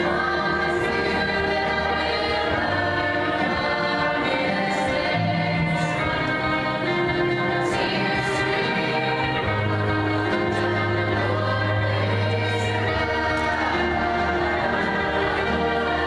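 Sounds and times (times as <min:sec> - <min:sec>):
choir singing sustained chords: 0:00.0 - 0:16.0.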